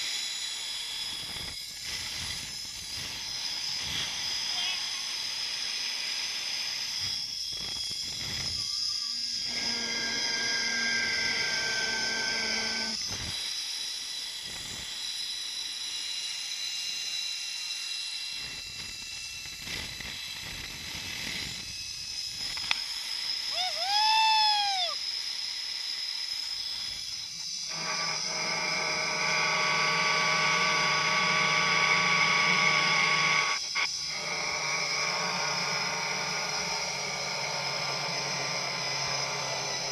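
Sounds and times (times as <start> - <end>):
pulley wheels whining on cable: 0.0 - 39.9
high rising and falling call: 23.5 - 25.0.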